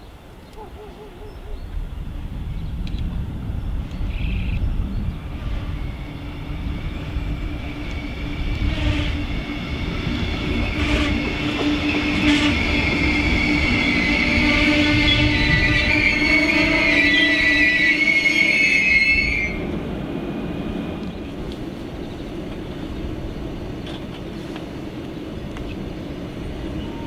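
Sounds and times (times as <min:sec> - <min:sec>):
train passing rumble: 0:00.1 - 0:27.0
high-pitched wheel squeal: 0:11.6 - 0:19.6.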